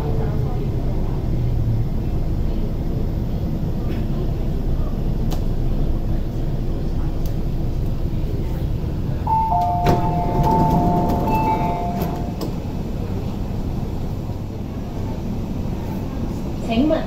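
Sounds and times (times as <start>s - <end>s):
train interior rumble: 0.0s - 17.0s.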